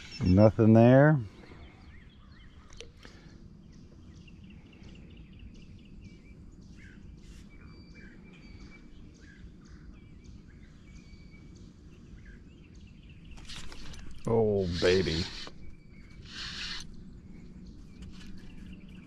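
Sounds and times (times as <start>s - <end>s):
birds chirping and calling: 0.0s - 19.0s.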